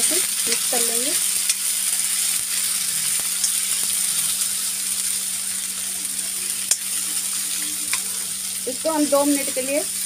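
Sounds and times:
potatoes sizzling in hot oil: 0.0 - 10.0.

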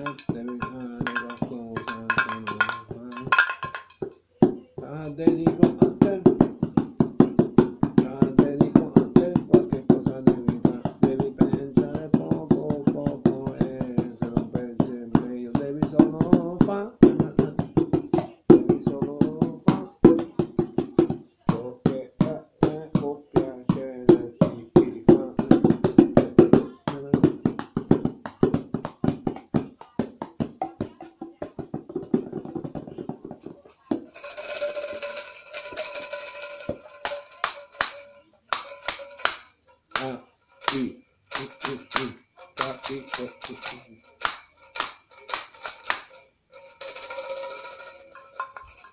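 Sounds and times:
tambourine jingling: 0.0 - 4.3, 33.4 - 48.9
hand percussion strikes: 0.0 - 48.9.

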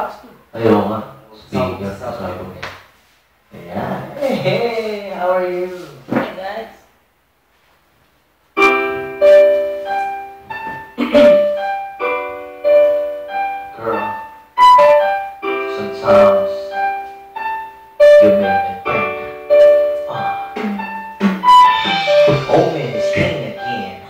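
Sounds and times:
piano chords and melody: 8.6 - 24.0.

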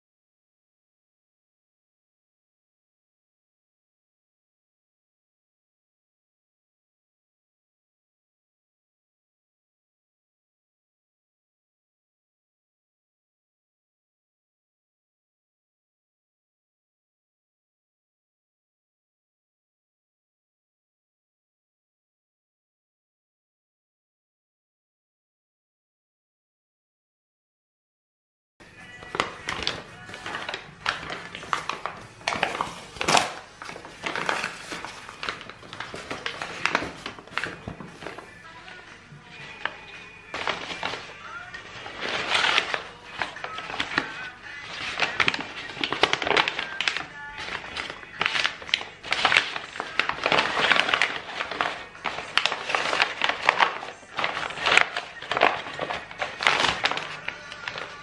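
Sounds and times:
wrapping paper crinkling: 28.8 - 58.0.

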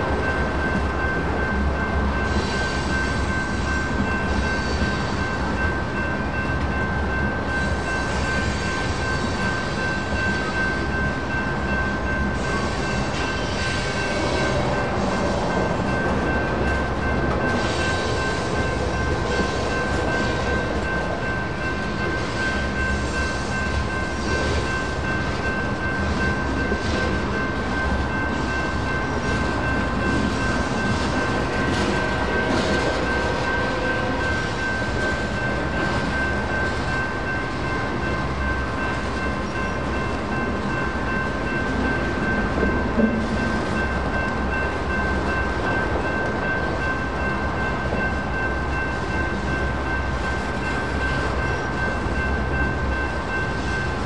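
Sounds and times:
freight cars rumbling on rails: 0.0 - 54.0
railroad crossing bell ringing: 0.0 - 54.0.

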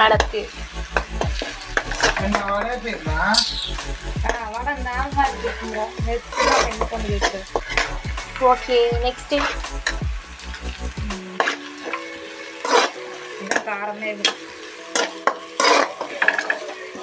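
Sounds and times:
frying sizzle: 0.0 - 17.0
spoon scraping a pan: 0.9 - 2.5, 3.3 - 4.5, 5.3 - 10.0, 11.3 - 17.0.

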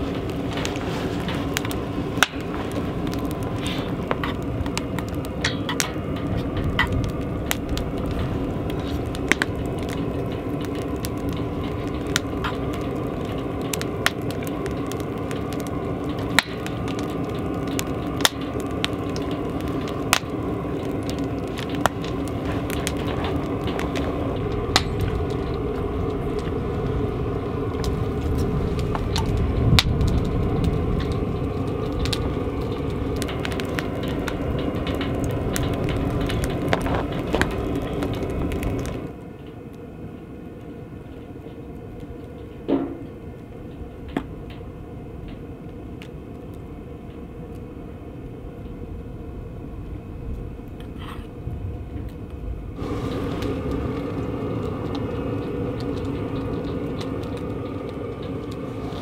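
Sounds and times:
sharp fire pops: 0.0 - 39.2, 51.9 - 59.0
campfire crackling: 0.0 - 59.0
low fire rush: 0.0 - 59.0.

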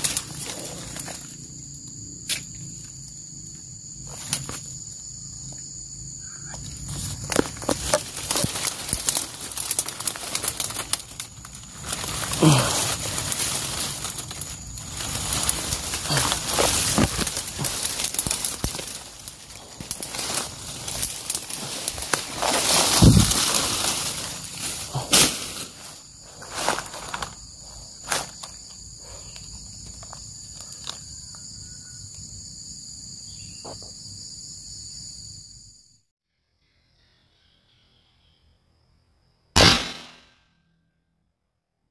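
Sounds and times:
footsteps in leaf litter: 0.0 - 1.3, 6.8 - 27.4
leaves and twigs crackling: 0.0 - 3.1, 3.9 - 5.6, 6.4 - 31.5
high-pitched insect chorus: 0.0 - 39.6.

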